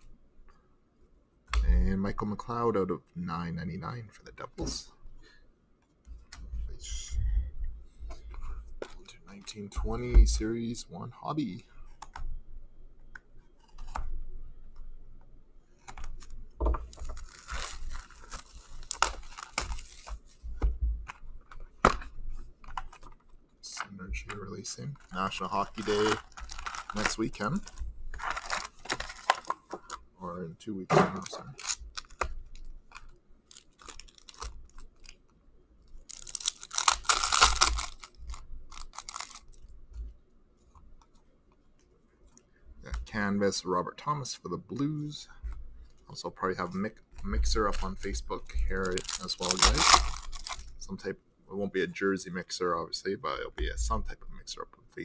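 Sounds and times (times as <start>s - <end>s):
cards being handled: 15.8s - 30.0s, 31.0s - 35.2s, 36.0s - 39.7s, 45.5s - 50.8s
plastic shrink wrap tearing: 16.9s - 20.2s, 25.0s - 30.0s, 31.2s - 35.2s, 36.0s - 39.7s, 48.8s - 50.8s.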